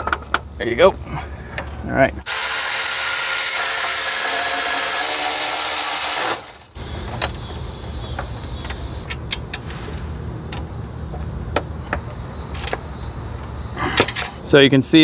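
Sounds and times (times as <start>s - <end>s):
power tool driving bolts: 2.3s - 10.0s.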